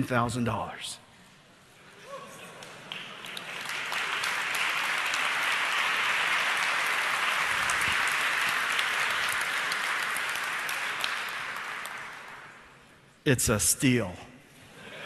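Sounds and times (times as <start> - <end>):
audience applauding: 2.4 - 12.7.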